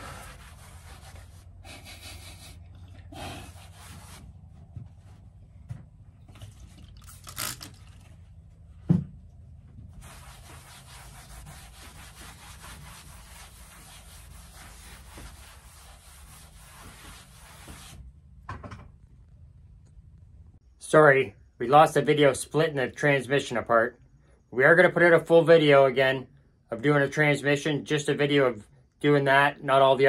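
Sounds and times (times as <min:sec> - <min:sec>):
cloth rubbing on tabletop: 0:00.0 - 0:01.6, 0:03.4 - 0:05.4, 0:09.9 - 0:18.0.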